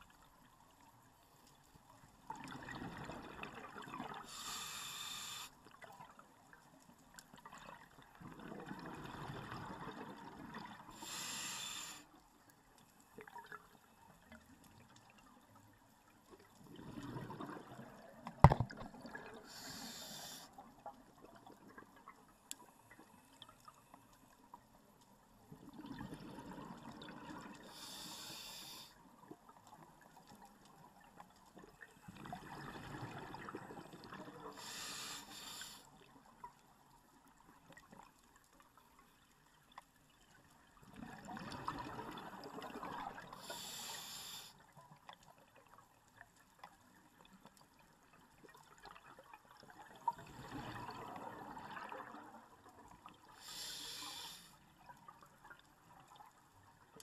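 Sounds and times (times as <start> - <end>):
bubbles gurgling underwater: 40.8 - 43.4.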